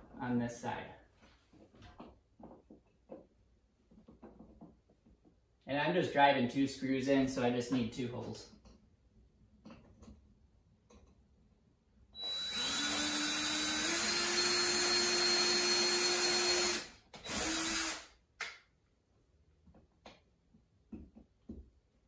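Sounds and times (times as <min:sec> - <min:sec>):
power drill boring holes: 0:12.2 - 0:18.1.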